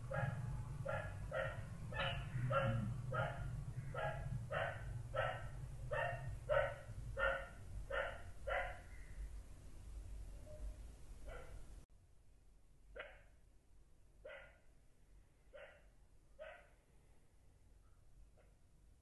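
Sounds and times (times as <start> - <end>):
short animal calls: 2.0 - 3.0.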